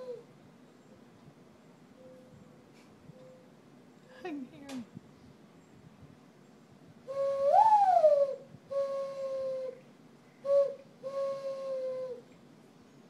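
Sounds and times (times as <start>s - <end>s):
person whistling dove coos: 7.1s - 9.8s, 10.4s - 12.2s.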